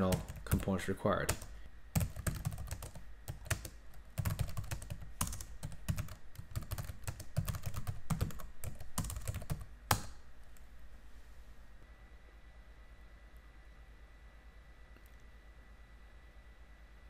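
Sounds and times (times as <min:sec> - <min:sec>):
computer keyboard typing: 0:00.0 - 0:10.2.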